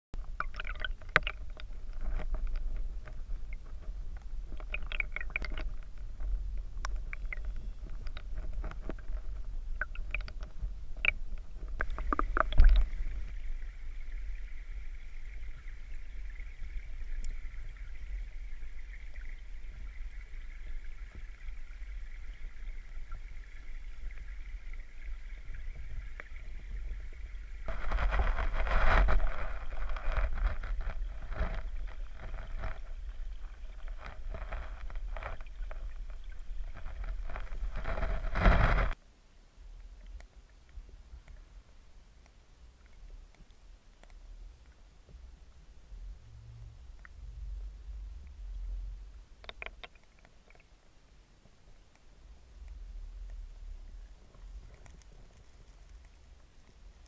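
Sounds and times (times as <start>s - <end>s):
rush of water: 0.2s - 39.0s
underwater creek rumble: 0.2s - 39.0s, 44.4s - 51.5s.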